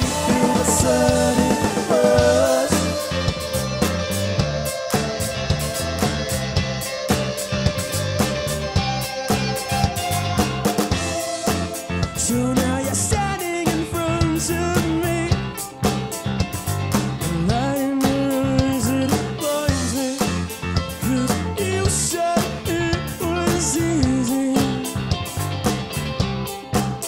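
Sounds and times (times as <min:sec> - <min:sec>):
man singing long notes: 0:00.0 - 0:03.4
rock band playing live: 0:00.0 - 0:27.0.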